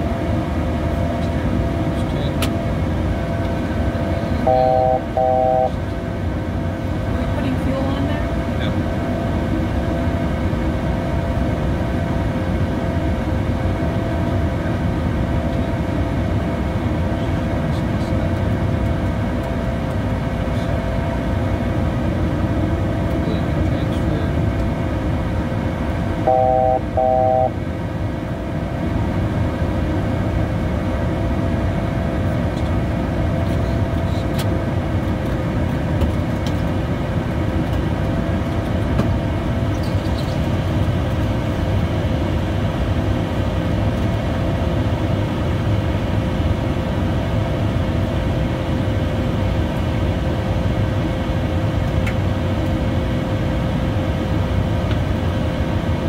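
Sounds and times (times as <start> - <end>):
engine hum: 0.0 - 56.0
jet cabin airflow roar: 0.0 - 56.0
short electronic beeps: 4.5 - 5.8, 26.3 - 27.6.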